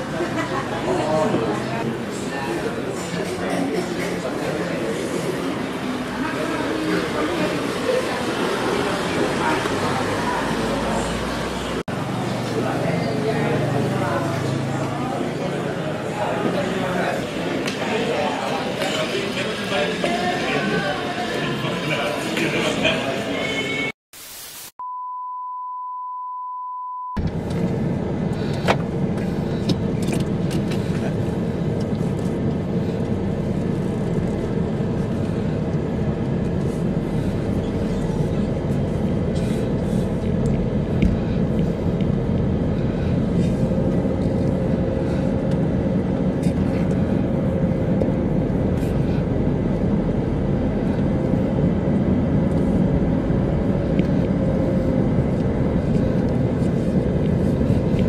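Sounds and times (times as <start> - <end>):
test-card beep tone: 24.8 - 27.2
car engine and tyres rumble: 27.2 - 58.0.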